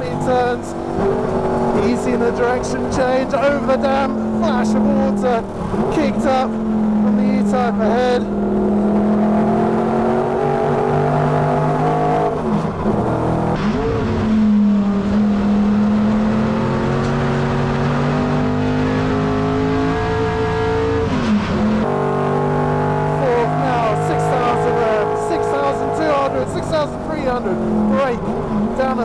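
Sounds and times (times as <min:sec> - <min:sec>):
racing engine at full throttle: 0:00.0 - 0:29.0.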